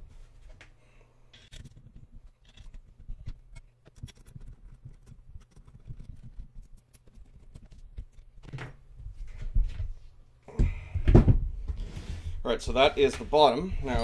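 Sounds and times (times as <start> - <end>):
small metal screws clicking: 3.5 - 8.3.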